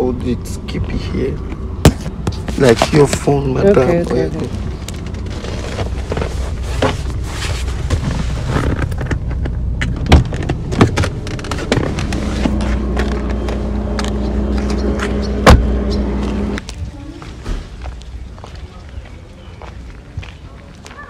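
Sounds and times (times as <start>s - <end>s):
low steady rumble: 0.0s - 18.7s
knocks and clicks of handling: 7.8s - 15.6s.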